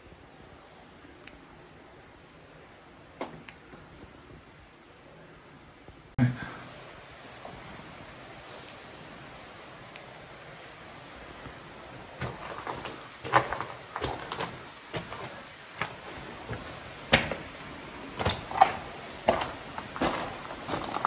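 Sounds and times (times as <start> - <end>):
footsteps on rock: 12.2 - 17.5, 18.2 - 21.0.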